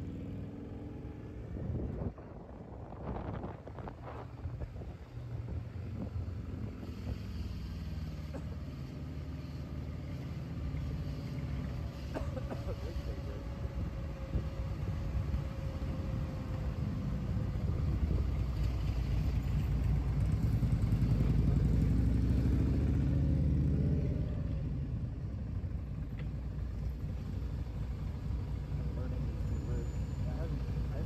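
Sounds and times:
road and wind noise: 0.0 - 31.0.

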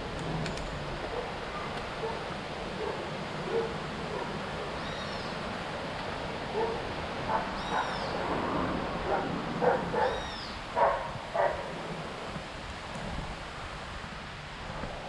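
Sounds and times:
wind or road noise: 0.0 - 15.0
dog barking: 1.1 - 4.4, 6.5 - 8.0, 9.1 - 10.2, 10.8 - 11.7.

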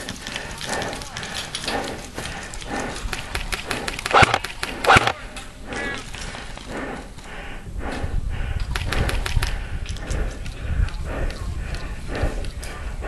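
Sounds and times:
low rumble of wind: 0.0 - 13.0
sharp clicks: 0.7 - 5.2.

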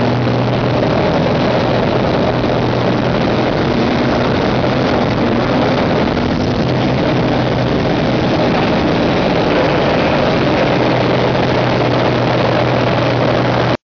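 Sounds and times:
plane engine and propeller: 0.0 - 13.8
wind rush: 0.0 - 13.8.

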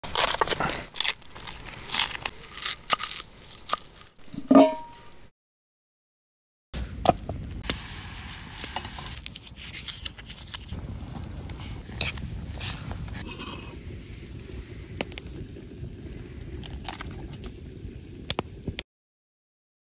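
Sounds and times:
metallic scrape of steel pot: 4.2 - 5.1
campfire crackling and popping: 6.8 - 18.8
low rumble: 10.8 - 17.1.

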